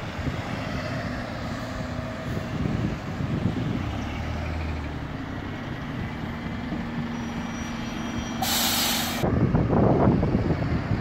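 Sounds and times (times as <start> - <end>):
diesel engine running: 0.0 - 11.0
air brakes hissing: 7.3 - 9.2.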